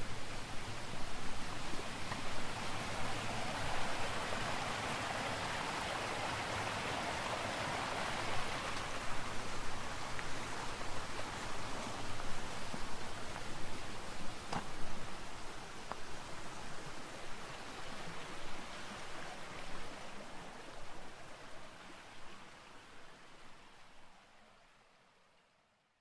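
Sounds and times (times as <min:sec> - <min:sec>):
stream flowing: 0:00.0 - 0:25.6.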